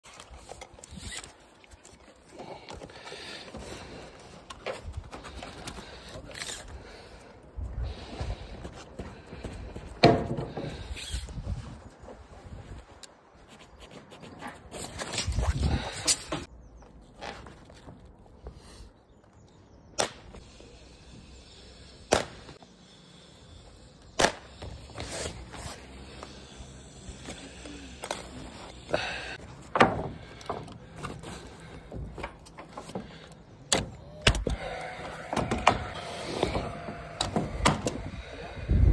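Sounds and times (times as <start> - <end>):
tape measure scraping underlay: 0.1 - 2.0, 24.8 - 27.6
sharp loud cracks: 22.1 - 22.5, 24.2 - 24.5.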